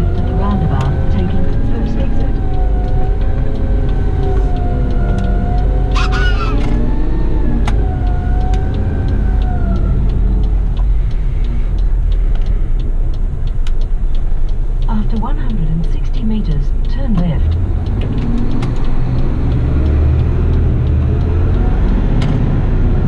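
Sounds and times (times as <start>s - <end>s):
engine whine: 0.0s - 23.0s
truck diesel engine rumbling: 0.0s - 23.0s.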